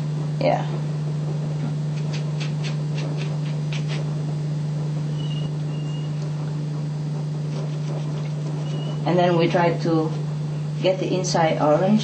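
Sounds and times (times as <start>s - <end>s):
steady low hum: 0.0s - 12.0s
knife cutting orange peel: 1.9s - 4.1s.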